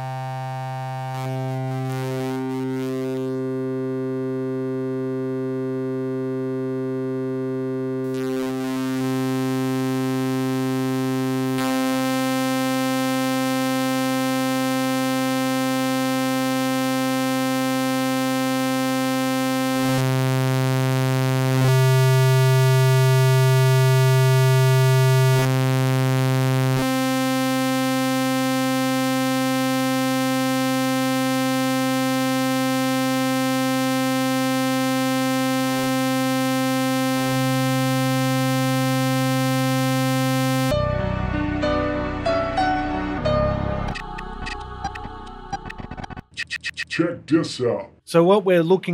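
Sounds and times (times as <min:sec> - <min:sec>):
sustained synthesizer note: 0:00.0 - 0:15.6, 0:33.7 - 0:46.8
low bass: 0:37.2 - 0:47.5.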